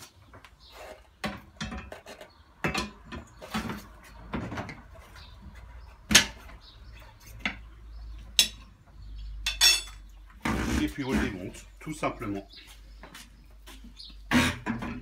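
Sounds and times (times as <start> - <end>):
metal bars knocking and clunking: 1.2 - 2.0, 2.6 - 4.9, 6.1 - 6.7, 7.4 - 10.0.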